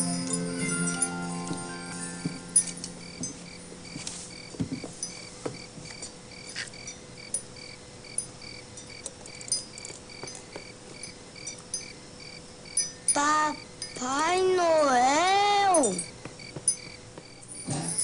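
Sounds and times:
crickets chirping: 0:00.0 - 0:18.0
faint steady hum: 0:00.0 - 0:18.0.

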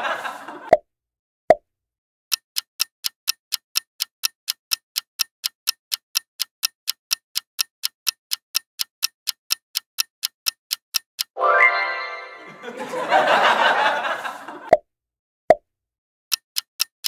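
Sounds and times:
clock ticking: 0:02.3 - 0:11.4, 0:16.3 - 0:17.0.

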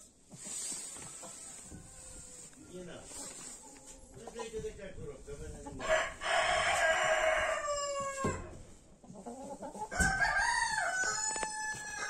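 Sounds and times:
rooster crowing: 0:05.8 - 0:08.4, 0:09.9 - 0:12.0.

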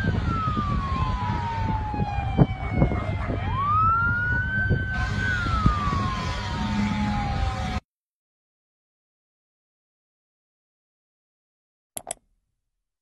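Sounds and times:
fire engine siren wailing: 0:00.0 - 0:07.8
low vehicle rumble: 0:00.0 - 0:07.8.

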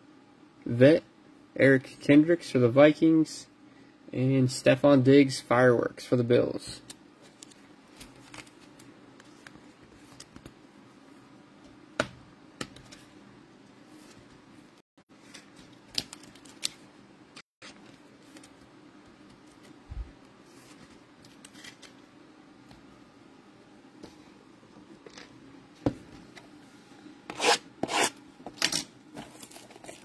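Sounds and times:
trading cards handling noise: 0:06.8 - 0:10.6, 0:15.1 - 0:22.1.

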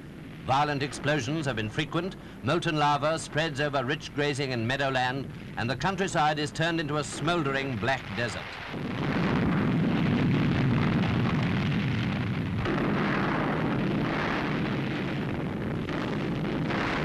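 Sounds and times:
crackling: 0:00.0 - 0:17.0
volcanic eruption rumbling: 0:00.0 - 0:17.0.

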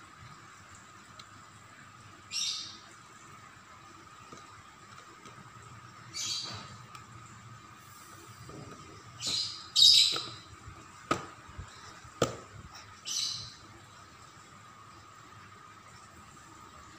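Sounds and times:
baby's hand slapping plastic tray: 0:12.2 - 0:12.5.

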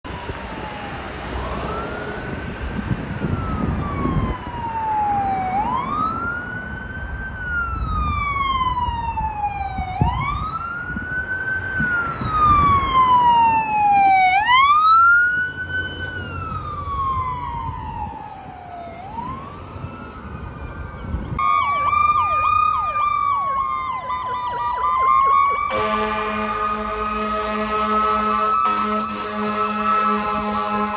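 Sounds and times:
ambulance siren wailing: 0:00.0 - 0:30.9
traffic and engine rumble: 0:00.0 - 0:30.9
wavering siren: 0:00.0 - 0:30.9
fire engine horn: 0:23.5 - 0:30.9.

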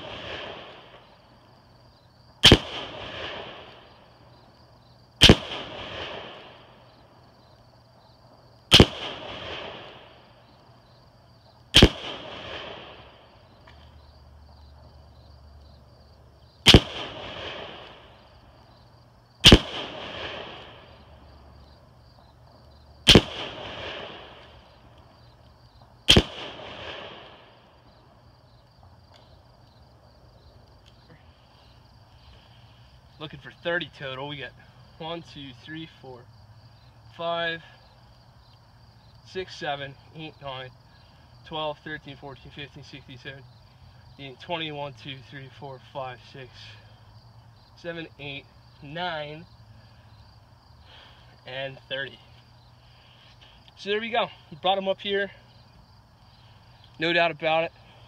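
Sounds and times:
rifle shots with rolling echo: 0:00.0 - 0:01.4, 0:02.3 - 0:07.2, 0:08.2 - 0:10.9, 0:11.5 - 0:13.6, 0:16.6 - 0:18.8, 0:19.4 - 0:28.2.

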